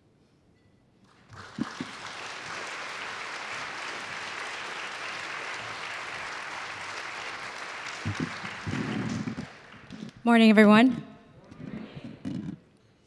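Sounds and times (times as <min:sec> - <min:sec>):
audience applauding: 0:01.0 - 0:10.2.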